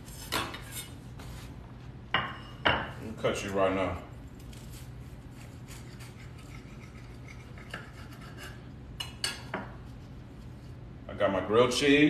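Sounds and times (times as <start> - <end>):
knife sawing through toast: 4.5 - 8.6.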